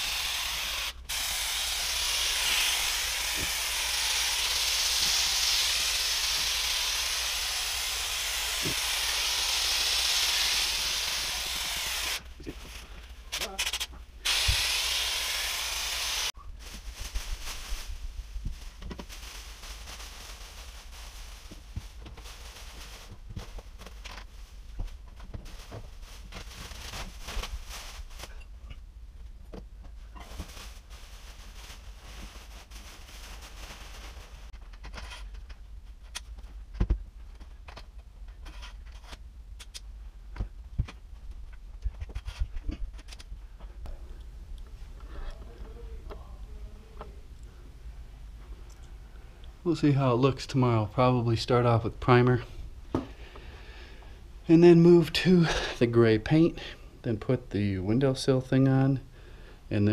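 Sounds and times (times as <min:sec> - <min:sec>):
aerosol spray can hissing: 0:00.0 - 0:12.2, 0:13.4 - 0:16.4
plastic sheeting crinkling: 0:15.8 - 0:28.5, 0:29.9 - 0:34.6.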